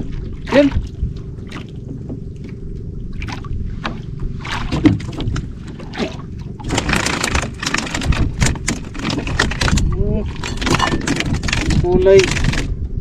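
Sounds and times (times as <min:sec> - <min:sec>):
water lapping against boat hull: 0:00.0 - 0:13.0
knocks on boat: 0:03.8 - 0:09.8.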